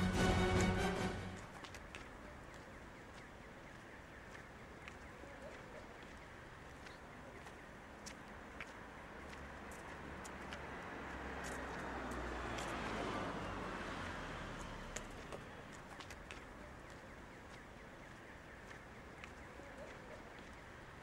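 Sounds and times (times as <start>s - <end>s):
car passing with low rumble: 8.9s - 16.0s.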